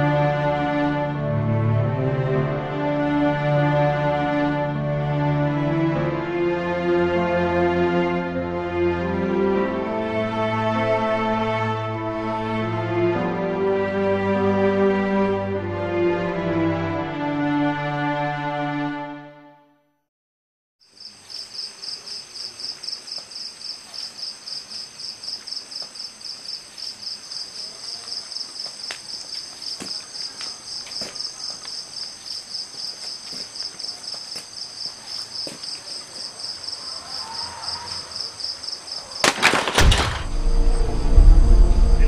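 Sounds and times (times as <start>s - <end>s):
crickets chirping: 20.8s - 39.4s
loud clatter: 39.2s - 41.8s.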